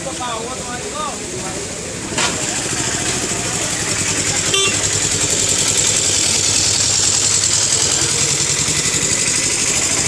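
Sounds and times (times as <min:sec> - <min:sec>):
vehicle engine running: 0:00.0 - 0:10.0
short high-pitched beep: 0:04.5 - 0:04.8.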